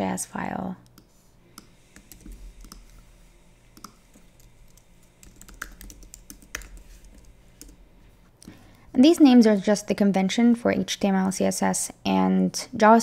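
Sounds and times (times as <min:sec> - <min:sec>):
computer keyboard keystrokes: 0:00.8 - 0:03.0, 0:03.8 - 0:07.8.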